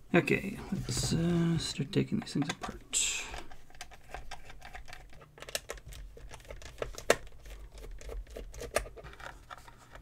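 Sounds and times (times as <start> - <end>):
plastic clicks: 2.1 - 10.0.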